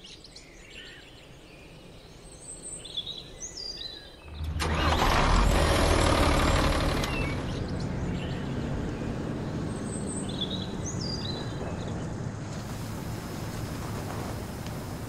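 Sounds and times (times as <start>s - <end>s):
birds chirping faintly: 0.0s - 5.2s, 5.8s - 15.0s
tow truck engine running: 4.3s - 15.0s.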